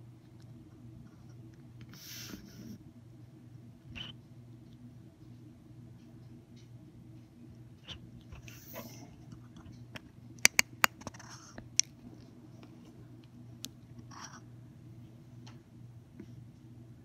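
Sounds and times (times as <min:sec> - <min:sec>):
sharp clicks: 0:10.4 - 0:11.1.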